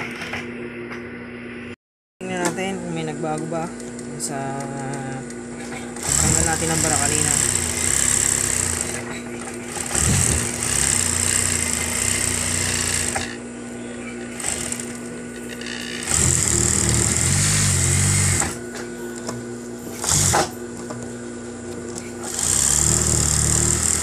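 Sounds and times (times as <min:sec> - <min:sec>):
motor humming: 0:03.8 - 0:24.0
sewing machine running: 0:06.0 - 0:13.4, 0:14.3 - 0:18.6, 0:20.0 - 0:20.5, 0:22.2 - 0:24.0.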